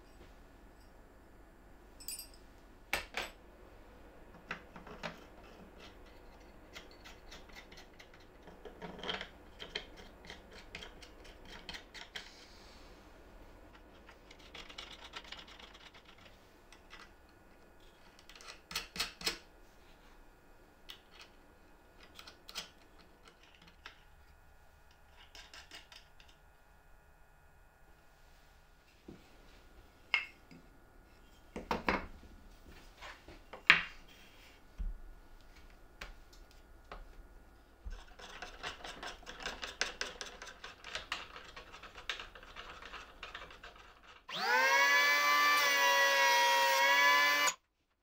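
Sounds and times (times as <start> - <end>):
metal rods and nuts clinking: 2.0 - 2.4.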